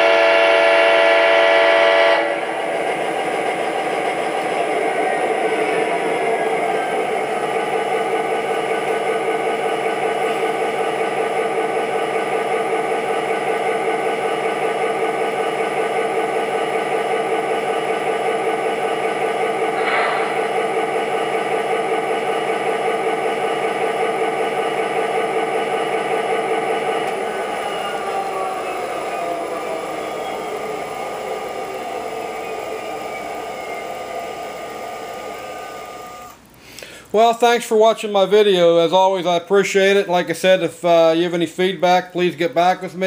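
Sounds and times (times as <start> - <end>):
diesel engine idling through speaker: 4.1 - 35.7.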